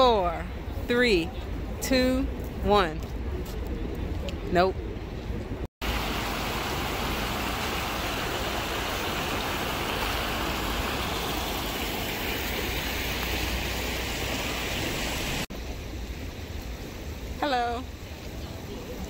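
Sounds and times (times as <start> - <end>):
running water rushing: 5.8 - 19.0.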